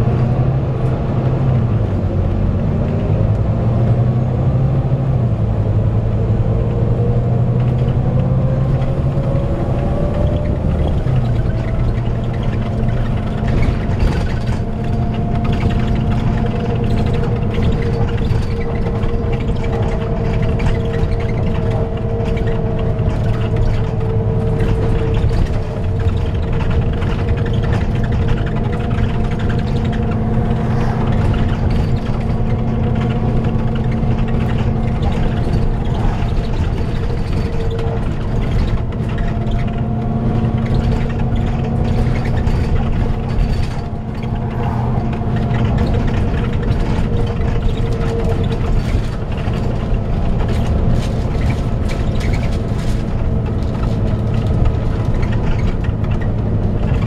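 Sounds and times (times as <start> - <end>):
bus engine running: 0.0 - 57.0
road rumble: 0.0 - 57.0
cooling fan whir: 5.4 - 57.0.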